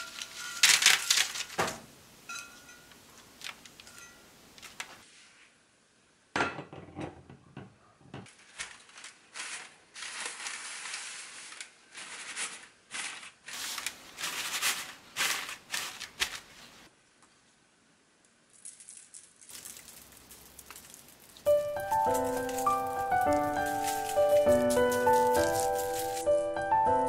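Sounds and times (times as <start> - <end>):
paper towel rustling and crinkling: 0.0 - 1.9, 8.3 - 16.9, 19.5 - 26.4.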